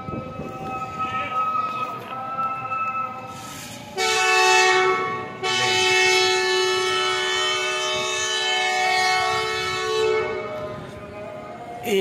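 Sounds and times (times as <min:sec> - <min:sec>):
locomotive horn blasts: 0:02.5 - 0:11.0.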